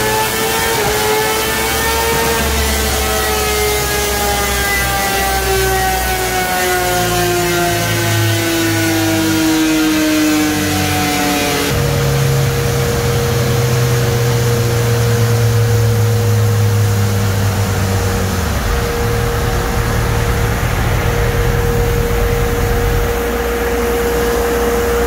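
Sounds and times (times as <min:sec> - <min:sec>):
steady whine: 0:00.0 - 0:09.4, 0:10.1 - 0:25.0
rushing fan noise: 0:00.0 - 0:25.0
low hum: 0:11.7 - 0:25.0.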